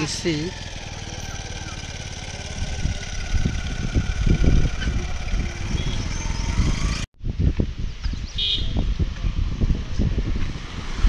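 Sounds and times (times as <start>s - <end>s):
vehicle engine running: 0.0s - 7.1s.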